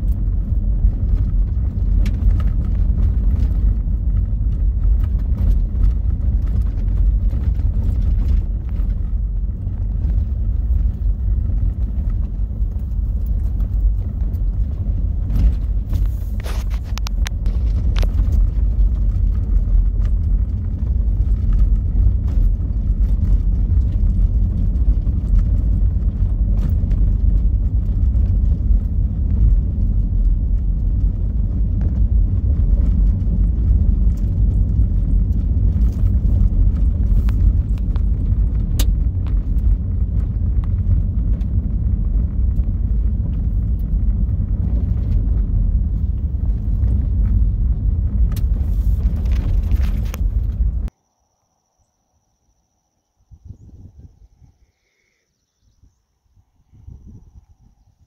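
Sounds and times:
vehicle rumbling on gravel: 0.0 - 51.0.

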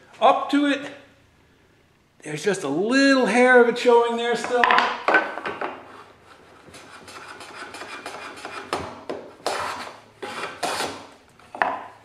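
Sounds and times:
hand plane shaving end grain: 9.4 - 11.0.

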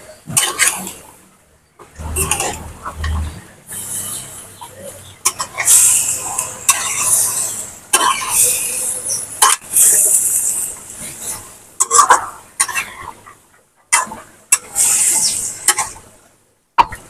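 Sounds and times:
metal spatula scraping wok: 1.9 - 13.2, 13.9 - 16.0
sizzling from hot pan: 5.2 - 11.5, 14.5 - 16.0.

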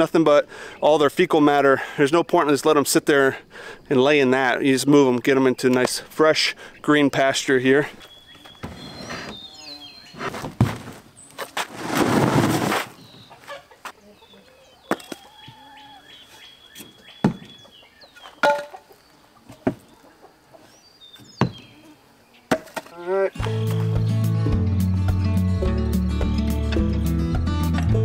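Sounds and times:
chicks clucking and peeping: 13.1 - 20.8.

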